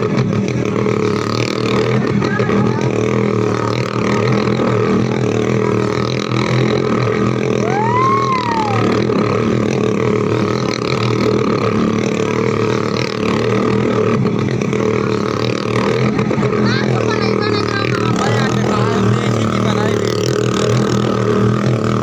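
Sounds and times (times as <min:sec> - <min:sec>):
motorcycle engine running: 0:00.0 - 0:22.0
rising and falling tone: 0:07.6 - 0:09.4.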